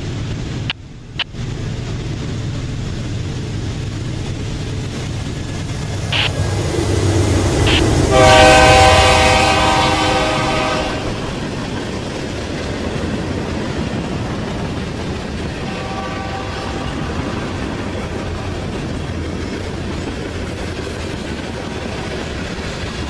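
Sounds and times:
freight train rumbling past: 0:00.0 - 0:23.0
wheels clattering on rails: 0:00.0 - 0:23.0
locomotive air horn: 0:07.7 - 0:11.3, 0:15.6 - 0:17.2.

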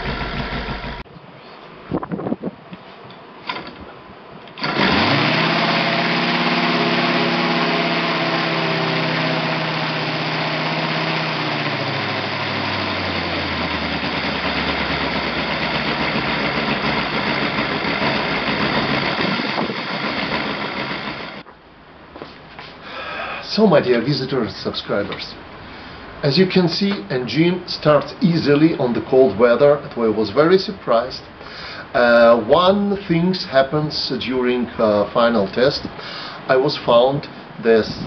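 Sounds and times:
model engine running: 0:00.0 - 0:01.0, 0:04.6 - 0:21.4
propeller flipped by hand: 0:00.0 - 0:01.0, 0:12.2 - 0:21.4.

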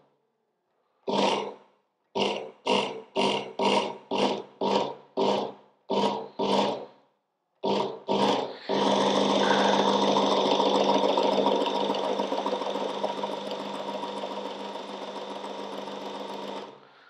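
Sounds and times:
belt sharpener motor humming: 0:07.7 - 0:16.8.

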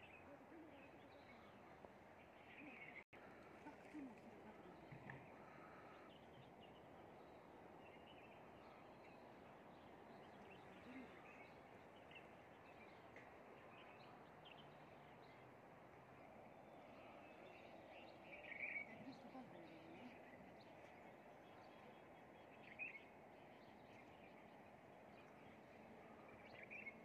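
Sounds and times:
faint bird chirps: 0:00.0 - 0:15.6, 0:16.4 - 0:27.0
faint outdoor hiss: 0:00.0 - 0:27.0.

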